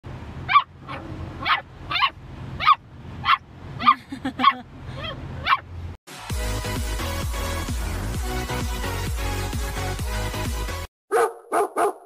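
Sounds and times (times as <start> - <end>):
low engine hum: 0.0 - 10.4
puppy barking in high yips: 0.4 - 5.7, 11.1 - 12.0.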